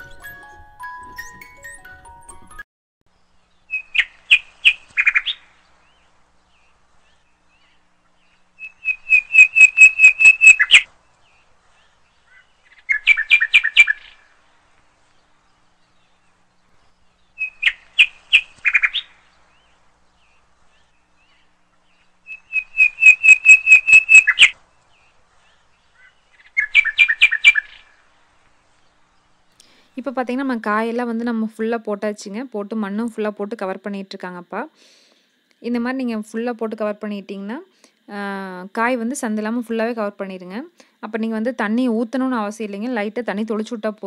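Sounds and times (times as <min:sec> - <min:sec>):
songbird singing: 0:00.0 - 0:44.0.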